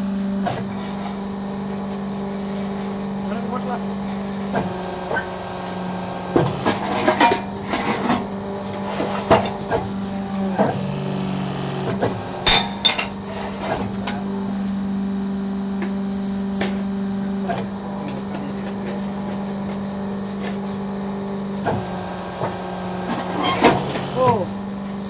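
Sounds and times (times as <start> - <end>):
motor and pump humming: 0.0 - 25.0
metallic knocks and clanks: 12.4 - 13.2.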